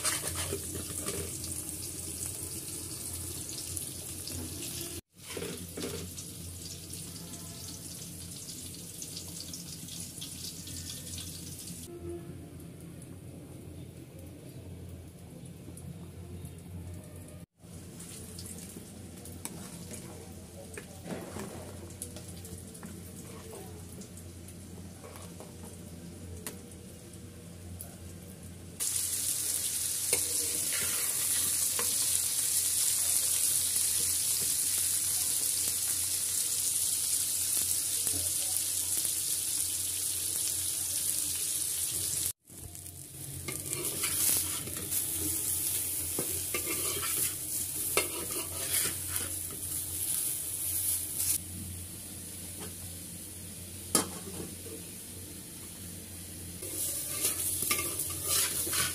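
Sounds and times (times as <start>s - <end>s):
spatula clicking and scraping: 0.0s - 1.4s, 43.5s - 44.9s, 46.2s - 49.4s, 56.7s - 58.9s
tomato sizzling in hot oil: 0.0s - 11.9s, 17.6s - 27.6s, 28.8s - 58.9s.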